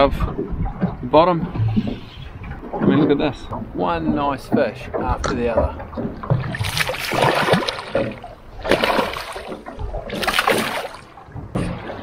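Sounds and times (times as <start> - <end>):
fish splashing in water: 6.0 - 11.2.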